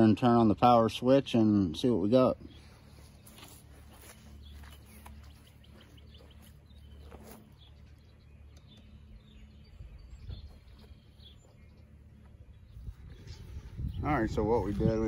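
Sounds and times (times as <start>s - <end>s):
faint bird chirps: 2.4s - 14.1s
low rumble: 2.6s - 15.0s.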